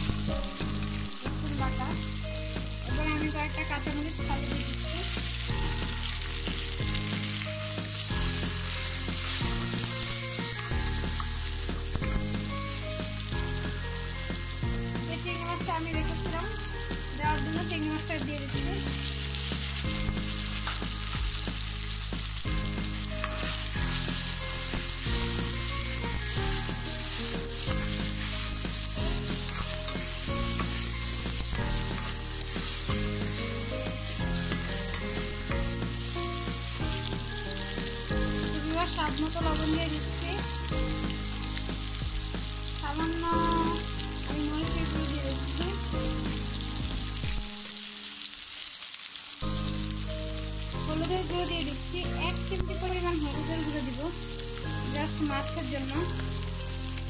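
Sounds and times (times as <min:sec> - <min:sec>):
food sizzling in hot oil: 0:00.0 - 0:57.0
spatula stirring in wok: 0:04.6 - 0:15.1, 0:18.8 - 0:42.8.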